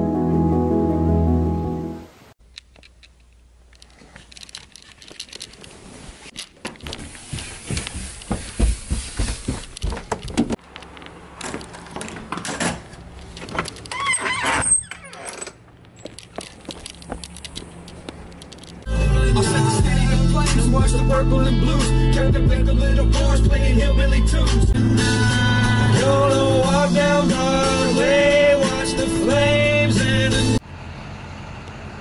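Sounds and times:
ambient background music: 0.0 - 2.1
handling knocks and rattles: 2.4 - 18.9
footsteps on carpeted stairs: 6.5 - 10.6
short squeak: 13.9 - 16.2.

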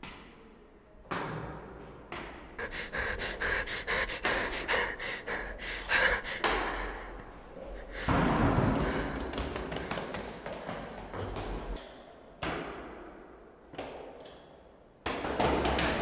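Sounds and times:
person panting: 2.6 - 10.6.

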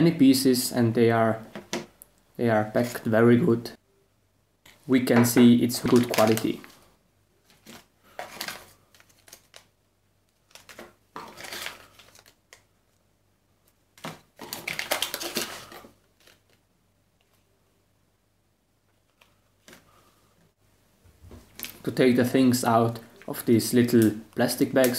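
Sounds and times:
plastic bags crinkling: 5.7 - 6.8, 7.5 - 9.7, 10.4 - 12.6, 14.0 - 16.6.

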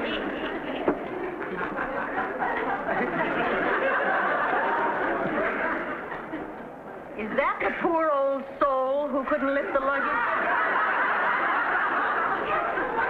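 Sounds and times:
audience laughter: 1.2 - 6.8, 9.3 - 13.0.

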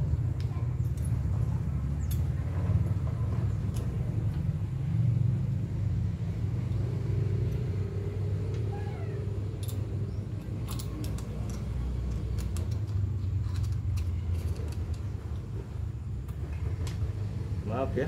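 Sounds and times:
small parts clicking: 9.5 - 15.6.

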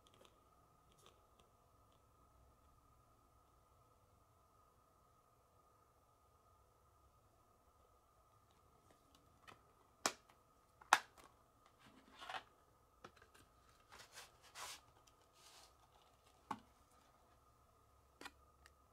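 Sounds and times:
cardboard sliding rustles: 13.8 - 16.3.

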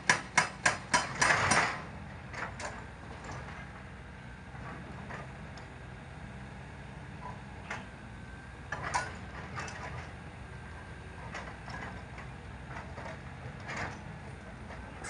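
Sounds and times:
excavator diesel engine: 0.0 - 15.0
metal knocks and clanks: 11.3 - 15.0.

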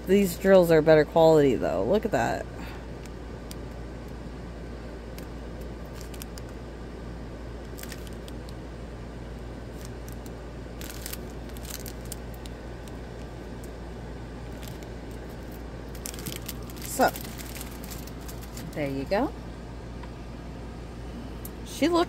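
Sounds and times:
steady low hum: 0.0 - 22.0
plastic bags crinkling: 5.2 - 6.6, 7.6 - 8.6, 9.7 - 13.8, 14.4 - 19.2
beads shifting in bag: 5.8 - 6.5, 7.7 - 8.5, 9.7 - 13.4, 14.5 - 19.1.

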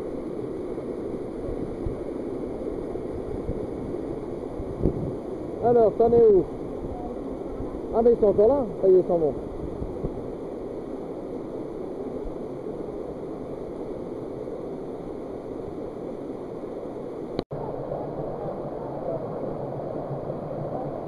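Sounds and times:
stream and waterfall rushing: 0.0 - 21.0.

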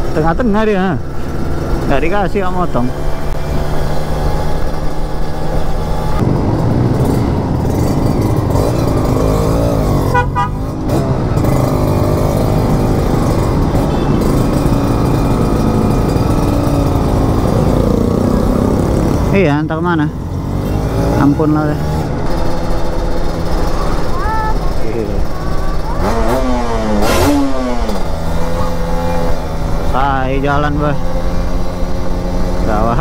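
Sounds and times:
motorcycle engine revving: 0.0 - 33.0
passing traffic: 0.0 - 33.0.

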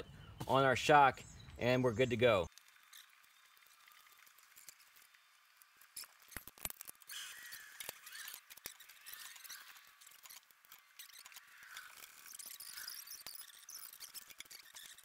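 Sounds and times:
squeaking and scraping: 2.7 - 15.0.

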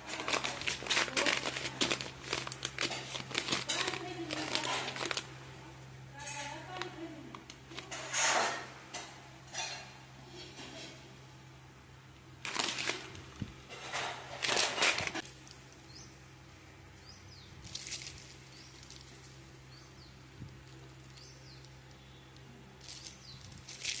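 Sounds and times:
plastic packaging crinkling: 0.0 - 8.6, 12.4 - 15.8, 17.7 - 19.5, 22.8 - 24.0.

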